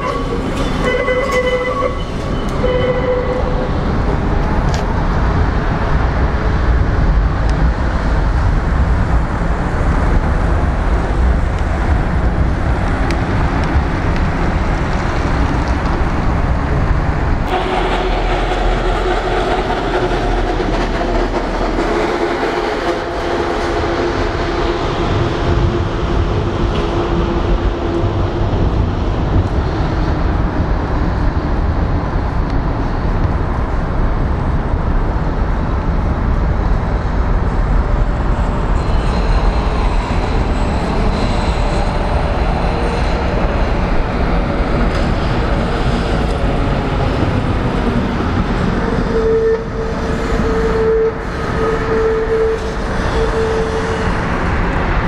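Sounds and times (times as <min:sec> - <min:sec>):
wheels squealing on rails: 0:00.0 - 0:03.9, 0:38.0 - 0:55.0
tram wheels rumbling on rails: 0:00.0 - 0:55.0.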